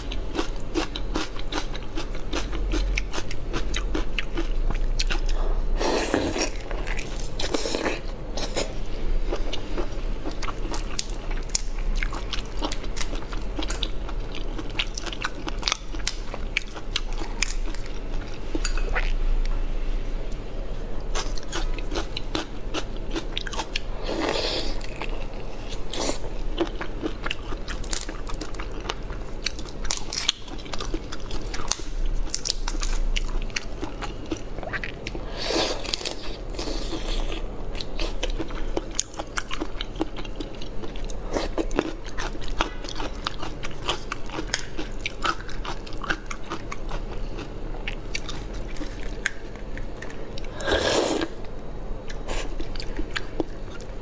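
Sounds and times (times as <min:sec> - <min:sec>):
wet chewing and crunching: 0:09.3 - 0:19.2, 0:21.1 - 0:50.6.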